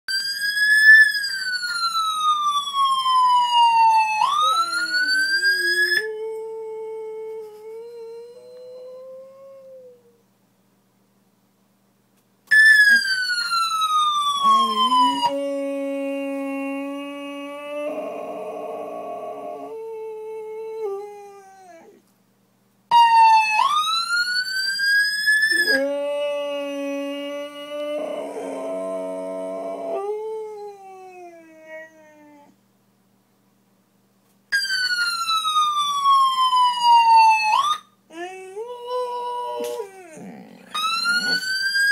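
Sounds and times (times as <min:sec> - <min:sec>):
siren wail: 0:00.2 - 0:06.2, 0:12.8 - 0:19.8, 0:22.9 - 0:30.7, 0:34.6 - 0:41.9
dog howling: 0:14.4 - 0:22.0, 0:25.5 - 0:32.5, 0:38.1 - 0:41.9.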